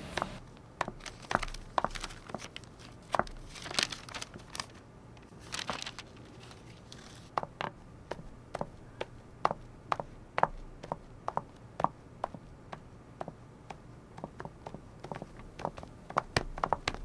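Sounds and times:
paper pages rustling: 0.2 - 7.7
high-heeled footsteps on tiled floor: 9.4 - 17.0.

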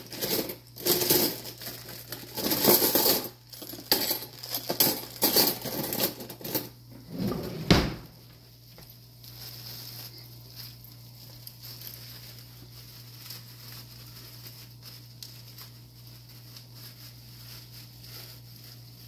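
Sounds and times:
kitchen utensils and dishes clinking: 0.0 - 8.0.

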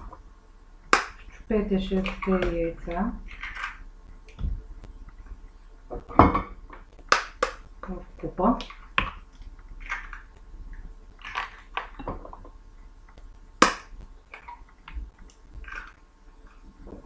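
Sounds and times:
eggshells cracking: 0.9 - 5.4, 6.0 - 16.6.

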